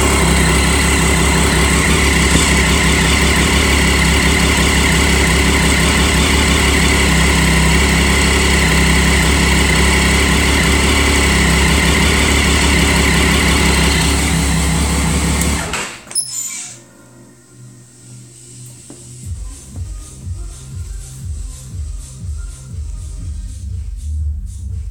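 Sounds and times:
motorcycle engine idling: 0.0s - 15.7s, 17.3s - 24.9s.

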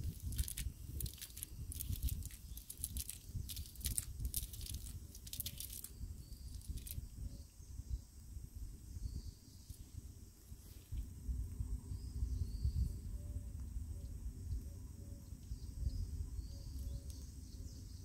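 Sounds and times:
wet net crackling and rustling: 0.0s - 7.0s
faint chirps: 0.1s - 11.0s, 11.6s - 18.0s.

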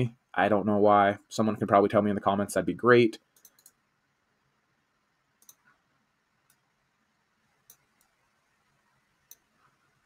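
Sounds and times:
computer mouse clicks: 3.3s - 3.8s, 5.4s - 5.8s, 6.4s - 6.7s, 7.6s - 8.2s, 9.2s - 9.8s.

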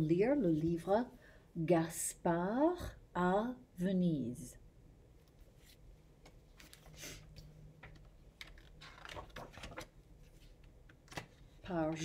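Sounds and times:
book rustle: 5.3s - 12.0s.

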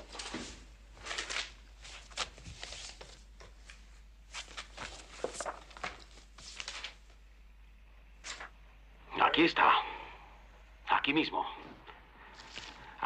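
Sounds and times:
papers and folder rustling: 0.0s - 7.2s, 8.2s - 8.5s, 12.3s - 13.0s.

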